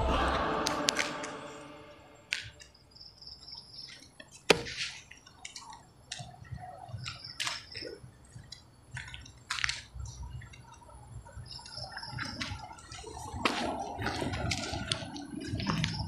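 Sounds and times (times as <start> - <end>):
footsteps on pavement: 2.3 - 16.0
small clicks: 3.8 - 10.8.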